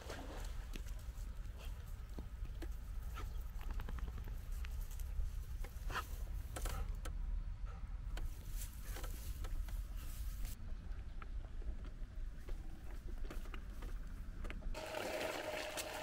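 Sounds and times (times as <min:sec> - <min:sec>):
dry grass rustling and crackling: 0:00.0 - 0:06.2, 0:08.2 - 0:10.6
dog sniffing: 0:05.7 - 0:07.0.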